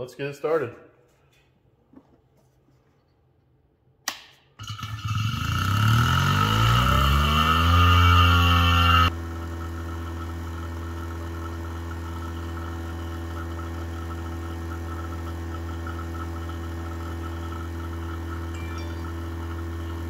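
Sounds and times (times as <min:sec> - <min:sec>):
vacuum pump motor hum: 0:08.0 - 0:20.0
high whine: 0:18.4 - 0:20.0.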